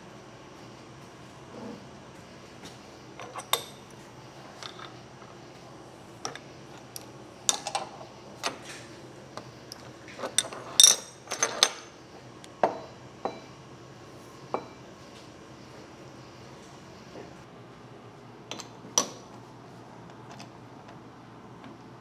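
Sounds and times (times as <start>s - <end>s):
steel tools clanking on metal table: 10.1s - 11.9s.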